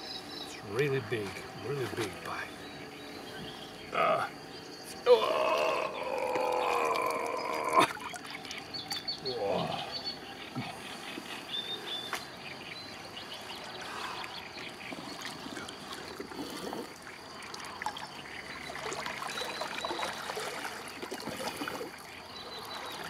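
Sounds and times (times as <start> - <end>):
shallow water lapping: 6.0 - 23.0
splashes and drips: 6.1 - 9.8, 13.6 - 23.0.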